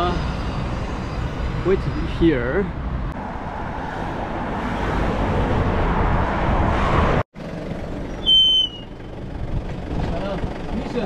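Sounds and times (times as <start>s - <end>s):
road traffic noise: 0.0s - 11.0s
vehicle passing: 0.0s - 11.0s.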